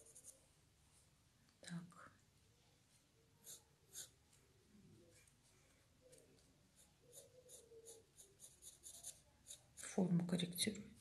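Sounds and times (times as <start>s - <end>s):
pencil scratching on paper: 0.0s - 0.4s, 3.4s - 4.2s, 6.7s - 10.0s.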